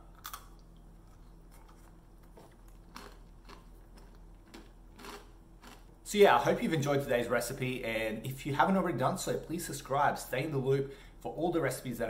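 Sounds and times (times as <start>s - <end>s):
soft crunchy chewing: 0.2s - 6.0s.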